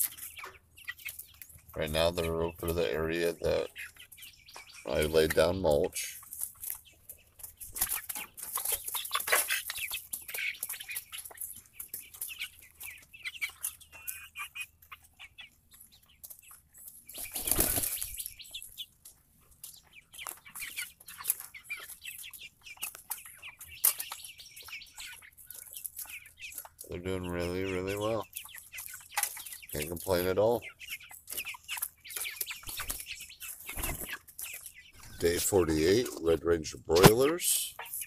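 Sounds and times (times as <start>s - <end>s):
chickens clucking and chirping: 0.0s - 38.0s
chickens scratching and pecking: 0.0s - 38.0s
wing flapping: 17.2s - 18.2s.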